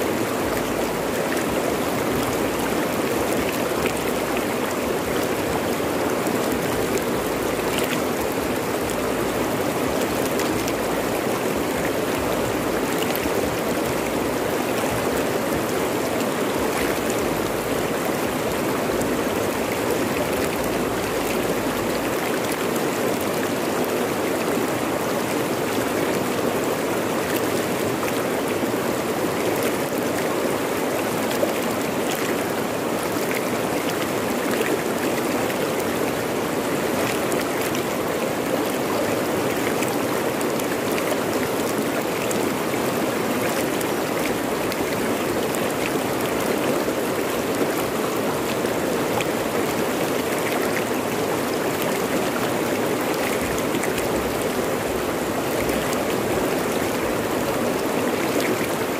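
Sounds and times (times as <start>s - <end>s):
river rushing over rocks: 0.0s - 58.9s
water splashes: 0.0s - 58.9s.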